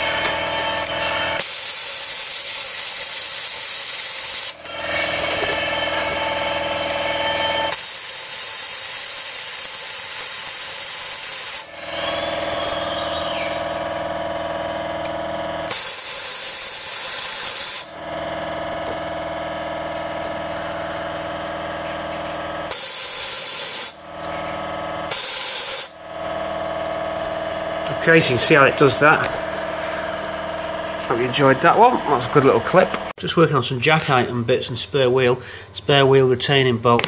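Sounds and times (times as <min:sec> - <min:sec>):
steady hum: 0:00.0 - 0:35.8
compressed air spray hissing: 0:01.4 - 0:04.6, 0:07.7 - 0:11.8, 0:15.7 - 0:17.9, 0:22.7 - 0:24.0, 0:25.1 - 0:26.0.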